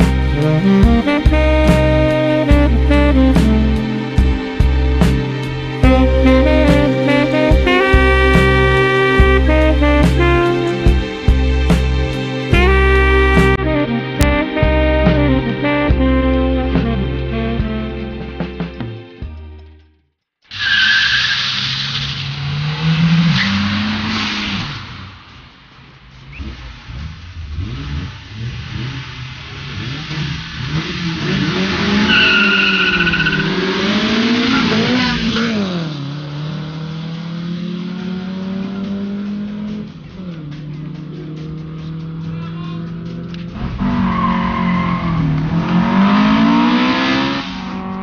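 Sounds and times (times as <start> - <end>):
car engine revving: 0.0 - 18.0, 20.5 - 48.0
tyres squealing: 31.6 - 35.6.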